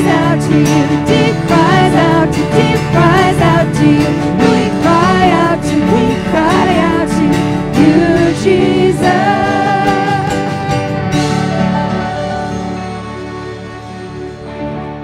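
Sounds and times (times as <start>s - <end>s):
people singing: 0.0s - 10.9s
worship band playing slow song: 0.0s - 15.0s.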